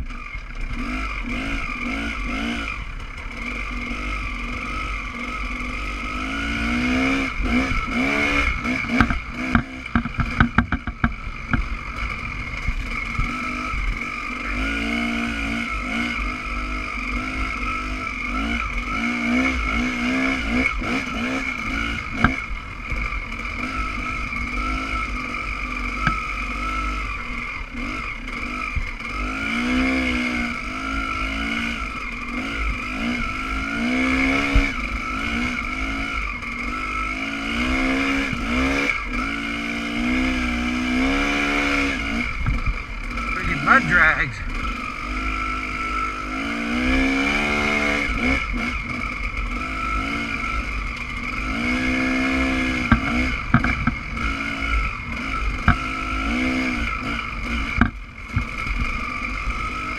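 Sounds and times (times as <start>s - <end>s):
dirt bike engine revving: 0.0s - 59.9s
sharp knocks and clicks: 8.9s - 11.7s, 22.2s - 22.4s, 26.0s - 26.2s, 52.9s - 54.0s, 55.6s - 55.8s, 57.8s - 58.5s.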